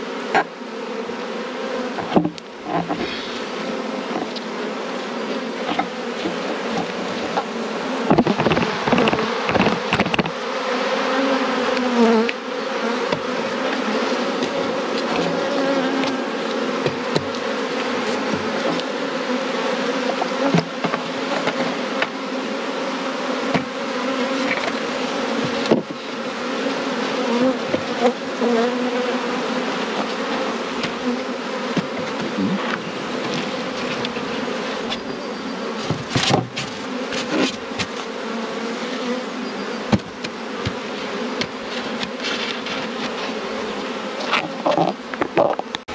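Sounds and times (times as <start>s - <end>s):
honeybees buzzing: 0.0s - 45.9s
knocks on hive frames: 1.9s - 3.2s, 5.6s - 10.4s, 13.0s - 19.0s, 20.0s - 22.2s, 23.4s - 26.2s, 27.3s - 28.6s, 29.9s - 35.1s, 35.8s - 38.2s, 39.8s - 43.2s.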